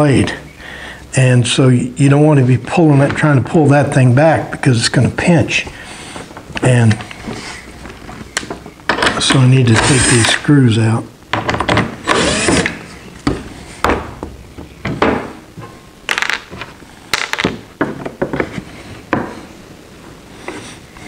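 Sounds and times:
wooden blanks shifting: 11.4s - 19.4s
cordless drill running: 12.0s - 12.8s
knocks and clicks of handling: 12.6s - 19.4s.

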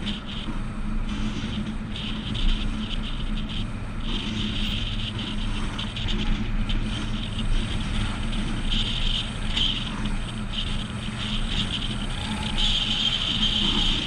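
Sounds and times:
tyre and wind road rumble: 0.0s - 14.0s.

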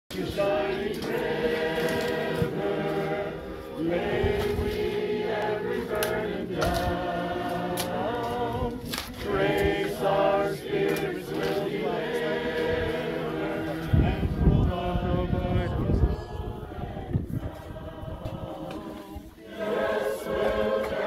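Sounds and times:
congregation singing a hymn: 0.1s - 21.0s.

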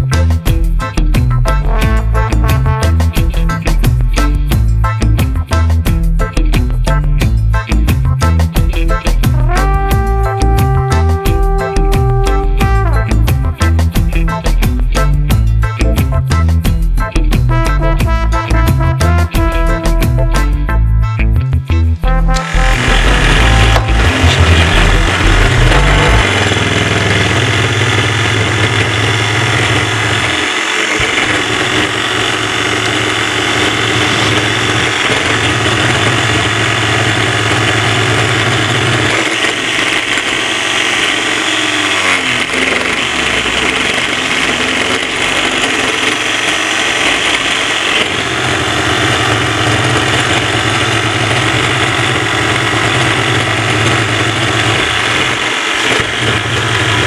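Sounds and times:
electric motor deep hum: 22.3s - 57.0s
model engine mechanical rattle: 24.2s - 57.0s.

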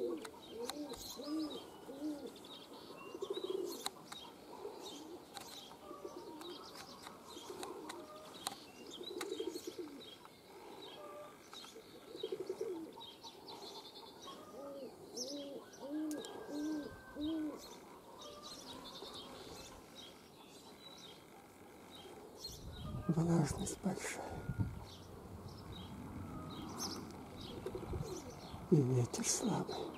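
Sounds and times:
pigeons cooing: 0.0s - 29.9s
small birds chirping: 0.0s - 29.9s.

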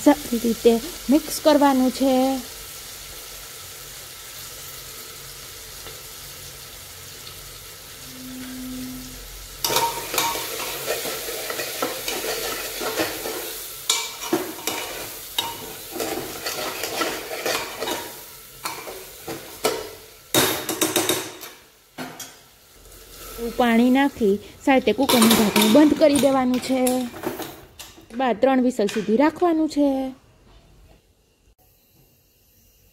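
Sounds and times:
oil sizzling: 0.0s - 30.1s
steel spoon scraping a pan: 8.0s - 20.0s, 20.6s - 24.3s, 25.0s - 27.6s.

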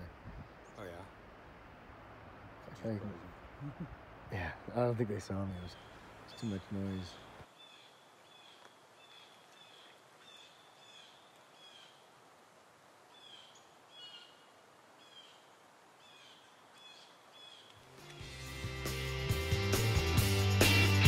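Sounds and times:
small bird chirping: 5.6s - 12.0s
music: 17.8s - 21.0s.

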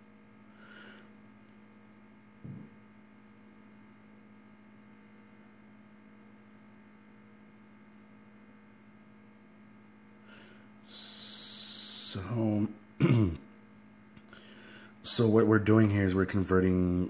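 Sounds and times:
low electrical hum: 0.0s - 17.0s
man clearing his throat: 13.0s - 13.5s
man breathing in sharply: 14.3s - 15.0s.

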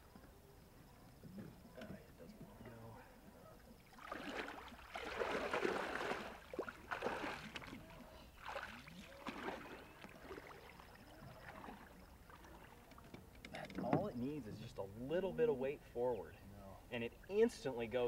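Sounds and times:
water splashing from wading: 3.8s - 13.1s.

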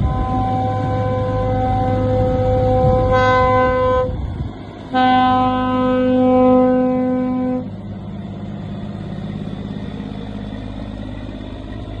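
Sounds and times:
truck horn long note: 0.0s - 4.2s, 4.9s - 7.7s
diesel truck engine driving by: 0.0s - 12.0s.

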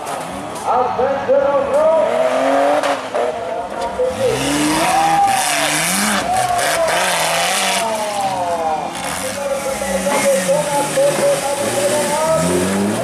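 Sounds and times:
engine revving up and down: 2.0s - 3.4s, 4.0s - 8.2s, 8.8s - 13.0s.

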